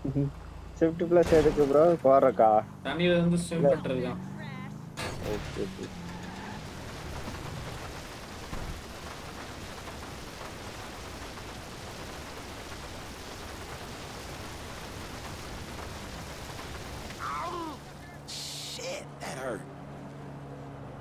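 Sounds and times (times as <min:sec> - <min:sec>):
water gushing from hydrant: 0:05.9 - 0:18.9.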